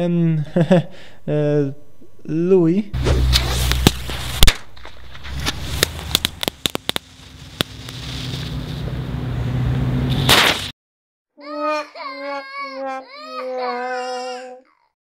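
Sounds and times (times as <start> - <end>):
firework pops and crackles: 3.3 - 8.6, 10.1 - 10.7.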